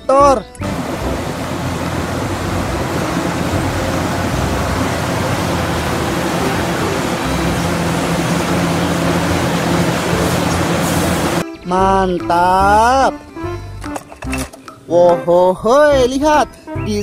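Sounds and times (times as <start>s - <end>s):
excavator diesel engine under load: 0.6s - 11.4s.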